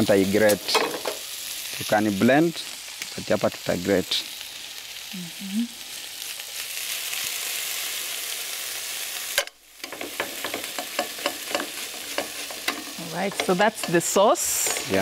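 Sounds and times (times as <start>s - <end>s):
onions sizzling in pan: 0.0s - 15.0s.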